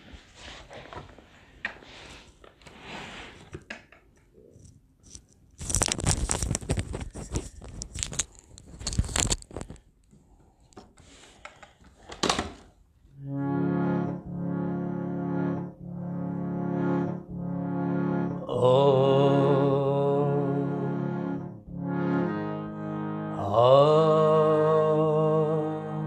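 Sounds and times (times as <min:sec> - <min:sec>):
paper rustling: 0:05.6 - 0:09.8.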